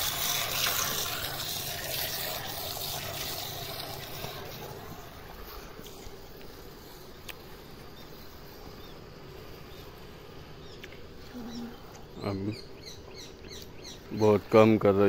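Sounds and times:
low outdoor background: 0.0 - 15.0
faint bird chirps: 10.6 - 14.4.

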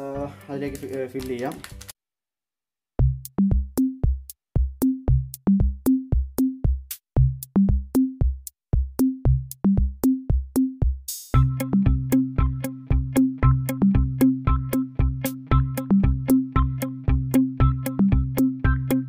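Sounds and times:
electronic drum-machine beat: 3.0 - 19.0.

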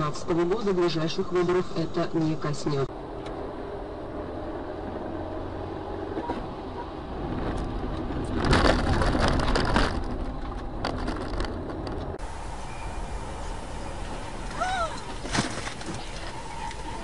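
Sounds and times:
car rumbling on road: 0.0 - 17.0
vehicle collision crash: 13.4 - 17.0.

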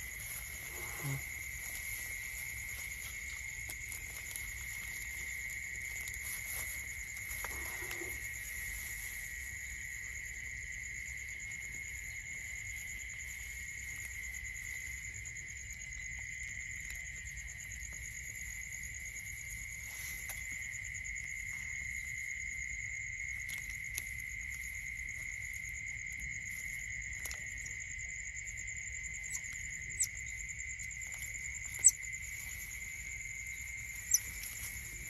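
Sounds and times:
faint rustles in straw: 0.0 - 10.2, 17.8 - 22.2, 23.4 - 35.0
crickets and insects trilling: 0.0 - 35.0.

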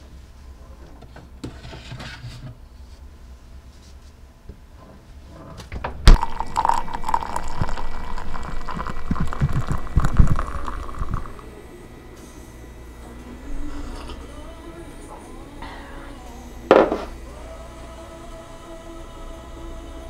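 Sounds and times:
drink pouring into ceramic mug: 6.1 - 11.5.

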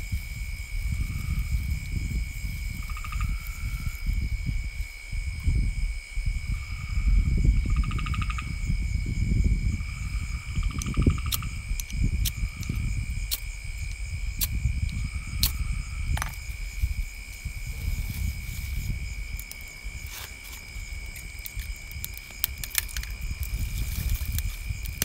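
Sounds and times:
crickets and insects calling: 0.0 - 25.0
low rumble on microphone: 0.0 - 25.0.

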